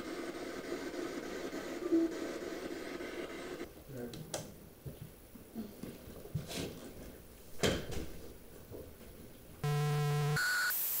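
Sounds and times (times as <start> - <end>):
static hiss: 0.0 - 3.7, 9.6 - 11.0
higher electronic beep: 9.6 - 10.8
loud electronic buzz: 9.6 - 11.0.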